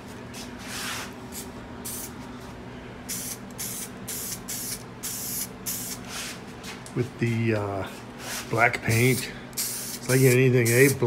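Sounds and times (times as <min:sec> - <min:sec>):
aerosol spray hissing: 0:03.1 - 0:06.3, 0:08.9 - 0:11.0.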